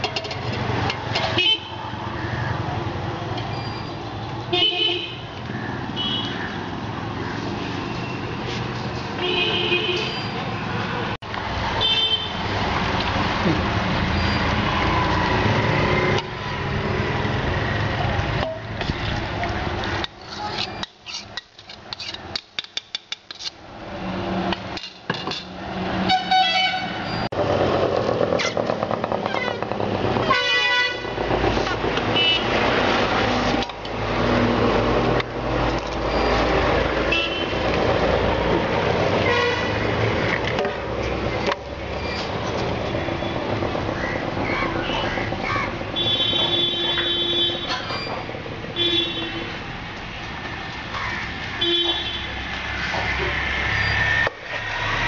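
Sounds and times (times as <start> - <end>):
car horn honks: 46.0 - 47.7.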